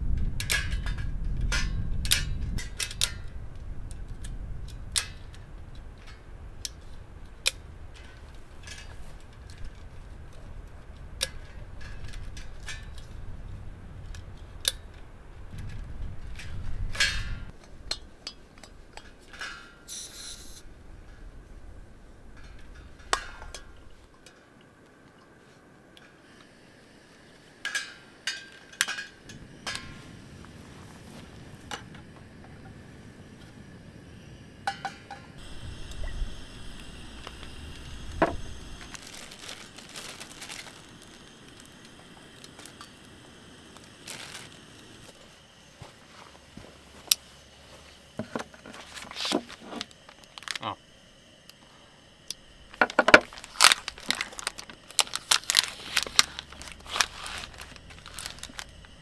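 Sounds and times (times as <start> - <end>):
wind on microphone: 0.0 - 17.6, 29.2 - 40.3
metal clicks of camp stove: 0.2 - 13.1, 14.1 - 15.0, 15.6 - 20.0, 22.3 - 24.5, 27.6 - 30.0, 34.6 - 37.5
gas hiss: 19.3 - 24.0, 26.0 - 59.0.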